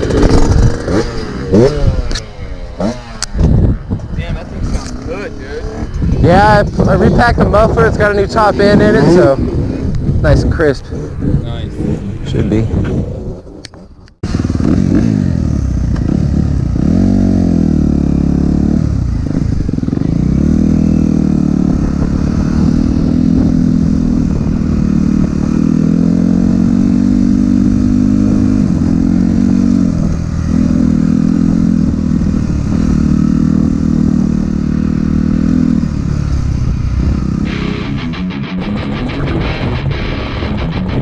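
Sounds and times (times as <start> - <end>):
dirt bike engine revving: 0.0 - 3.9, 4.5 - 10.2, 14.2 - 41.0
rock music: 37.4 - 41.0.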